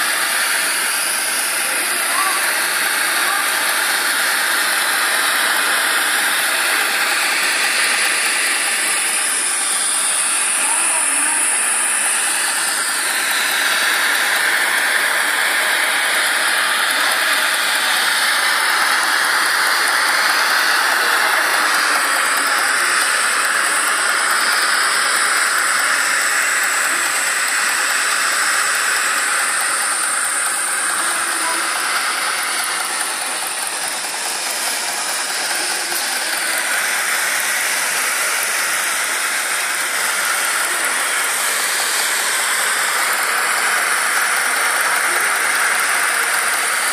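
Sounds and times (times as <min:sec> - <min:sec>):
gas torch hissing: 0:00.0 - 0:46.9.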